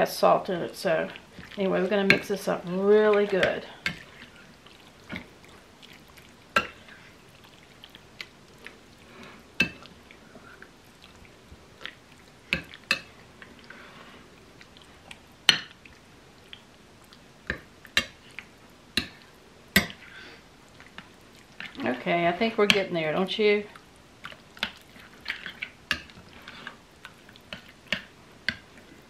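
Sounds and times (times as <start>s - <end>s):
wet squishing: 0.9s - 2.3s, 3.1s - 13.8s.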